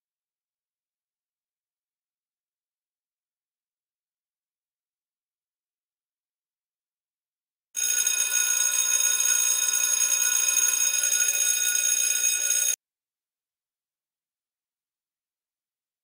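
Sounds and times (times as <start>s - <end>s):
alarm clock bell ringing: 7.8s - 12.8s.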